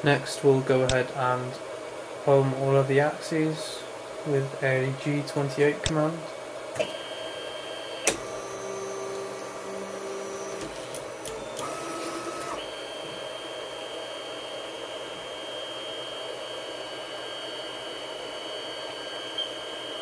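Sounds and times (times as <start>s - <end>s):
stepper motor whine: 6.8s - 20.0s.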